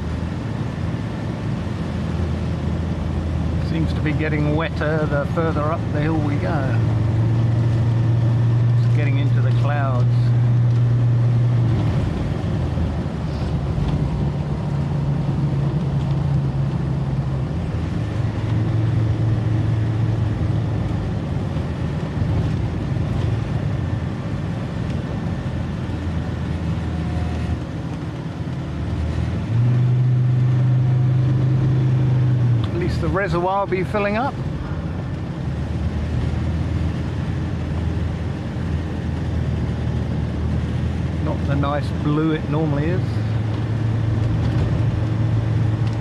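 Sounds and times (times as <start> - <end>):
car engine drone: 0.0 - 46.0
tyres rumbling on wet road: 0.0 - 46.0.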